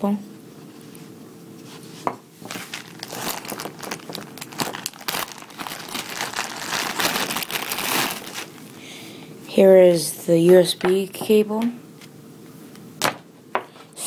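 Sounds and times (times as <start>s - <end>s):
plastic bag crinkling: 2.4s - 8.8s.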